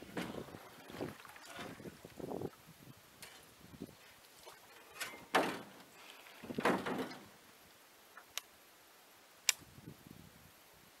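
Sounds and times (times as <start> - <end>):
scraping in metal boat: 4.7 - 7.4.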